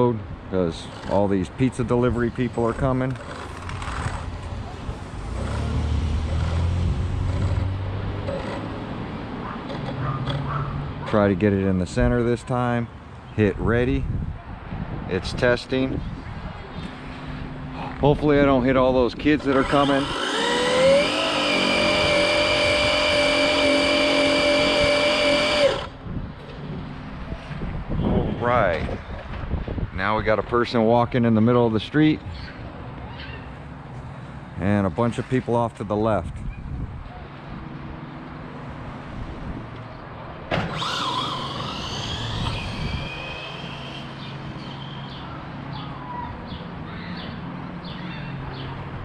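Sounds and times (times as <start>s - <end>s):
electric motor whining: 19.4s - 26.0s, 40.6s - 44.3s.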